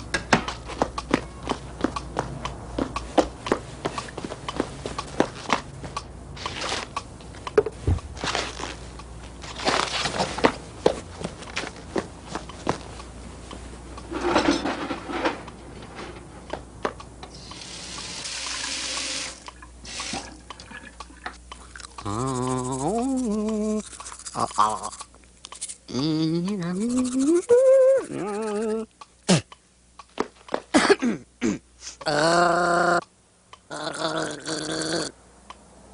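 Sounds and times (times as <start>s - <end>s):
voice making wordless rising tones: 22.0s - 23.8s, 25.9s - 28.9s.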